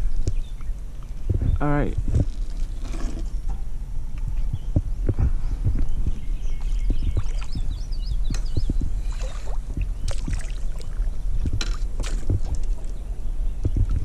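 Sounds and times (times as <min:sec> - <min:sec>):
paddle splashing in water: 0:09.0 - 0:11.1, 0:11.7 - 0:13.0.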